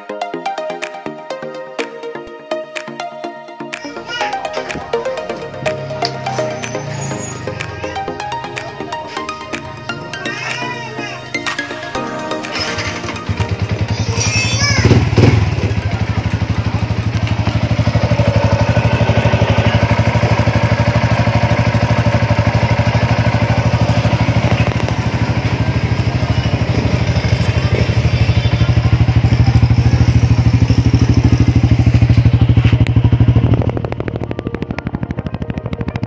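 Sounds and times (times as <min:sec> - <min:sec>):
motorcycle engine idling: 0:12.6 - 0:36.0.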